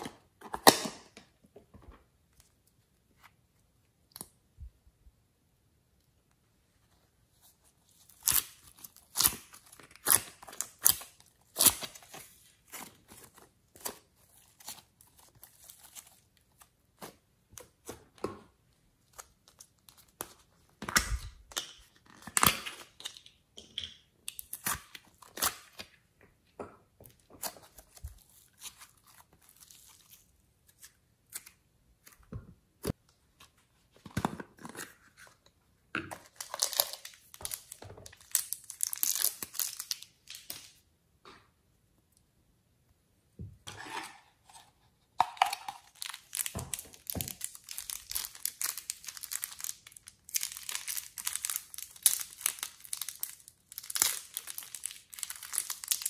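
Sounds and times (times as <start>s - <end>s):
plastic crinkling and tearing: 36.2s - 40.7s, 45.4s - 56.0s.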